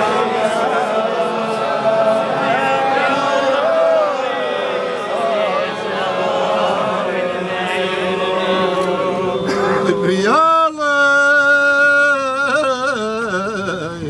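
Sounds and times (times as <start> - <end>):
men chanting a prayer: 0.0 - 14.0.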